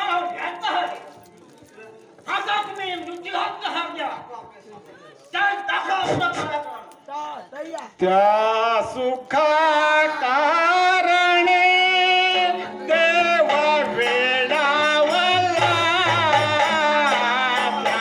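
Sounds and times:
person singing ornamented melody: 0:09.4 - 0:18.0.

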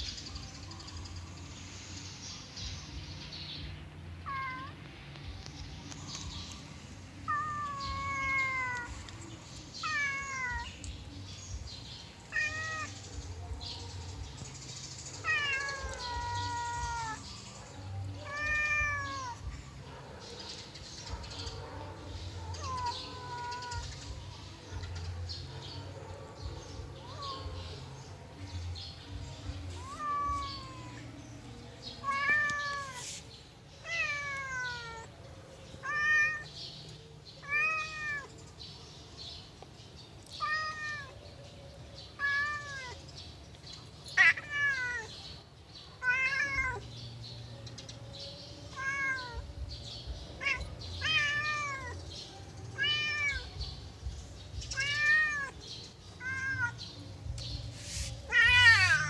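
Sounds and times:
cat meowing: 0:04.2 - 0:04.8, 0:07.3 - 0:08.9, 0:09.8 - 0:10.7, 0:12.3 - 0:13.0, 0:15.2 - 0:17.3, 0:18.2 - 0:19.5, 0:22.6 - 0:23.9, 0:29.7 - 0:31.0, 0:32.0 - 0:33.1, 0:33.8 - 0:35.1, 0:35.8 - 0:36.5, 0:37.4 - 0:38.3, 0:40.4 - 0:41.2, 0:42.2 - 0:43.0, 0:44.2 - 0:45.1, 0:46.0 - 0:46.8, 0:48.7 - 0:49.5, 0:50.4 - 0:52.0, 0:52.8 - 0:53.6, 0:54.8 - 0:55.6, 0:56.2 - 0:56.8, 0:58.3 - 0:59.0.

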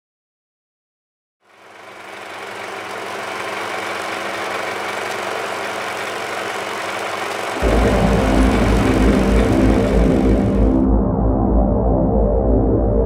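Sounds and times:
loud deep sound: 0:07.6 - 0:13.0.

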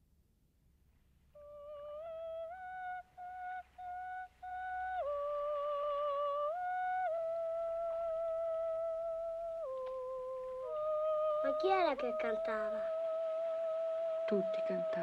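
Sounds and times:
faint low hum: 0:00.0 - 0:15.0
woman singing wordless notes: 0:10.5 - 0:13.6, 0:14.2 - 0:15.0.

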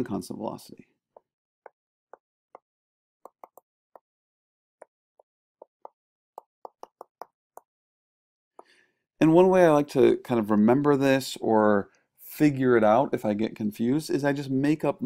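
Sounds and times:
stylus tapping on a tablet screen: 0:03.2 - 0:03.7, 0:05.6 - 0:07.7.

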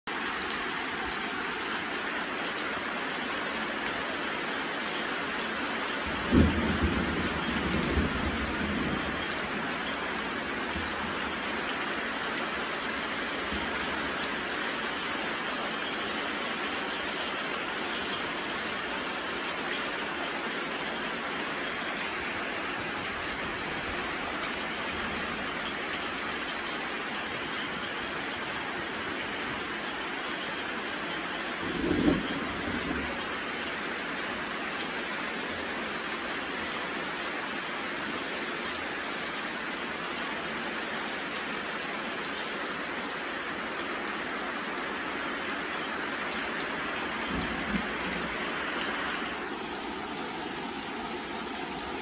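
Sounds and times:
heavy rain: 0:00.0 - 0:52.0
thunder rumble: 0:06.0 - 0:11.5, 0:31.6 - 0:33.4, 0:47.0 - 0:48.9.

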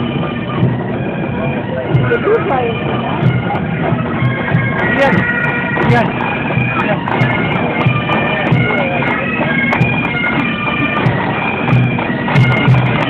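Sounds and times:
bagpipes playing a tune: 0:00.0 - 0:13.0.

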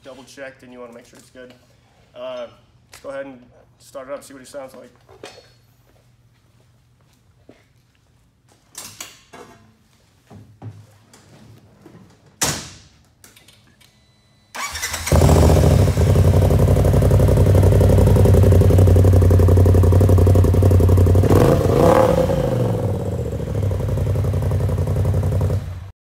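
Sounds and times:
engine starting and idling loudly: 0:14.6 - 0:25.8.

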